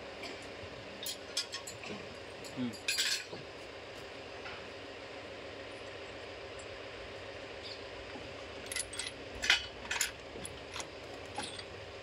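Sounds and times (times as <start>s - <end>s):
metal parts clinking: 8.6s - 11.7s.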